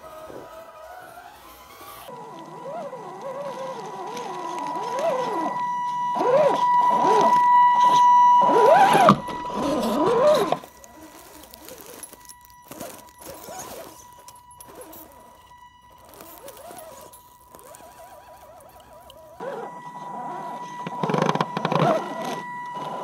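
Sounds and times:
steady high tone: 0.0s - 23.0s
toy car electric motor whining: 0.0s - 23.0s
tyres crackling on rocks and leaves: 0.0s - 23.0s.

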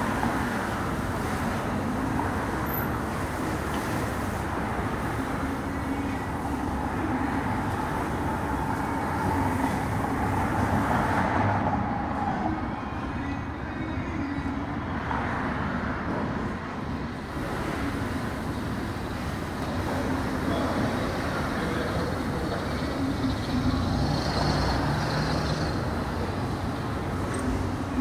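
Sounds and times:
traffic rumble: 0.0s - 28.0s.

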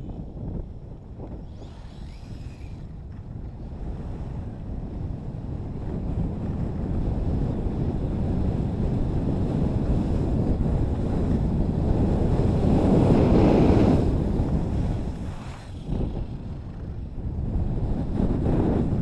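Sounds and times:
wind on microphone: 0.0s - 19.0s
skis hissing over snow: 13.0s - 16.4s.

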